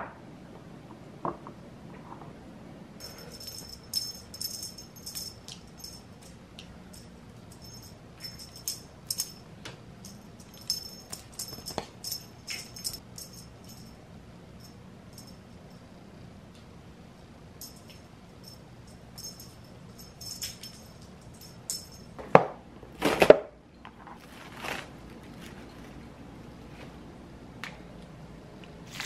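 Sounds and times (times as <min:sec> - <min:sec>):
small bell jingling: 0:03.0 - 0:14.0, 0:14.6 - 0:15.9, 0:17.6 - 0:22.2.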